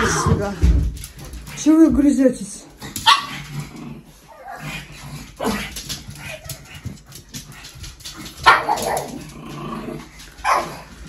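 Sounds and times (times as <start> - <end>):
dogs barking: 3.0 - 3.6, 8.3 - 9.3, 10.4 - 11.0.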